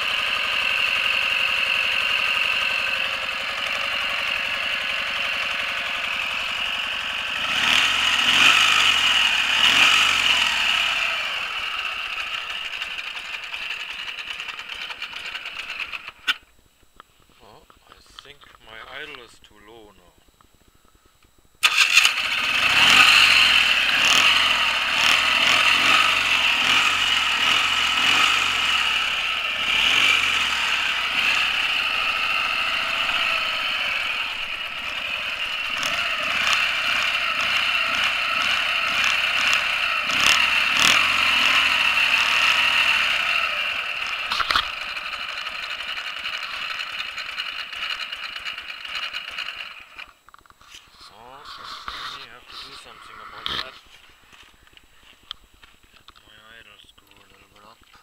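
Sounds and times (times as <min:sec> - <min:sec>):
motorcycle engine starting and running: 0:00.0 - 0:16.8, 0:21.4 - 0:58.0.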